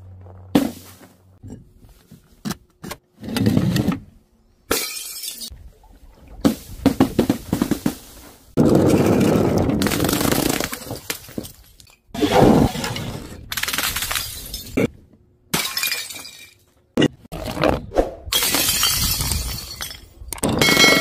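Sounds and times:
glass bottles shattering on stone: 0:04.7 - 0:05.5, 0:15.5 - 0:16.6, 0:18.3 - 0:21.0.

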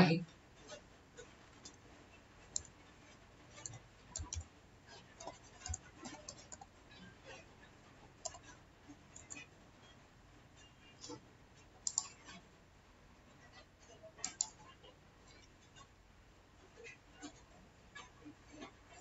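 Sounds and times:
keyboard keys clicking: 0:03.6 - 0:04.4, 0:11.8 - 0:12.1.

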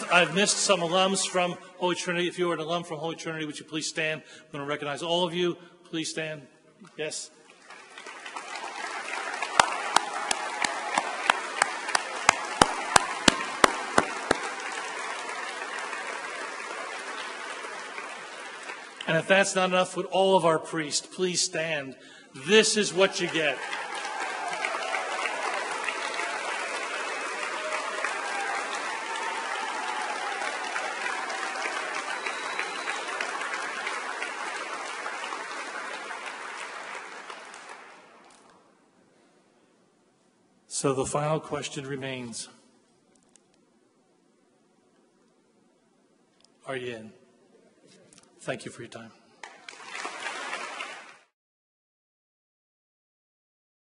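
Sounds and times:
audience applause: 0:00.0 - 0:01.4, 0:07.5 - 0:19.9, 0:22.5 - 0:38.5, 0:49.4 - 0:51.3
close hand claps: 0:07.6 - 0:19.2, 0:23.2 - 0:38.6, 0:49.4 - 0:51.3.

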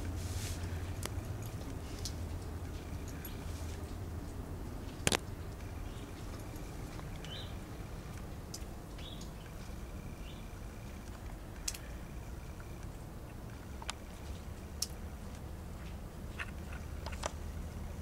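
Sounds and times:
low outdoor rumble: 0:00.0 - 0:18.0
faint sharp clicks: 0:11.0 - 0:11.9.

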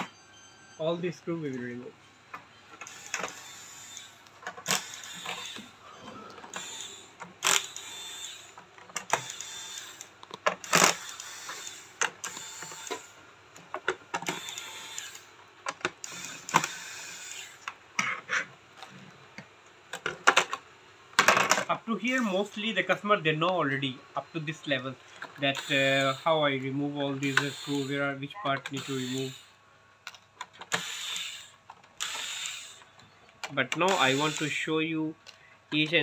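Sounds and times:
electric screwdriver whirring: 0:02.8 - 0:13.2, 0:14.2 - 0:15.3, 0:16.0 - 0:17.8, 0:25.5 - 0:26.3, 0:27.2 - 0:29.5, 0:30.7 - 0:32.9, 0:33.8 - 0:34.7.

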